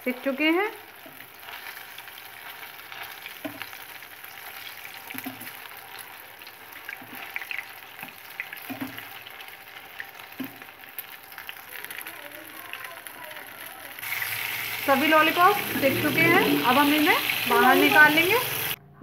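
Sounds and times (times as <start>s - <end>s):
food deep-frying in oil: 0.0s - 18.8s.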